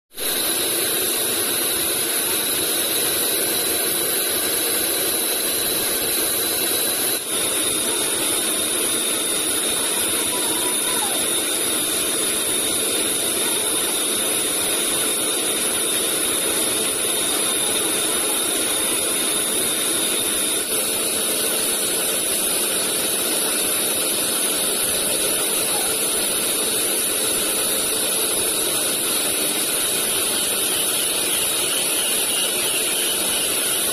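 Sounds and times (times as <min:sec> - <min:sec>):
band saw cutting log: 0:00.1 - 0:33.9
high-pitched saw whine: 0:00.1 - 0:33.9.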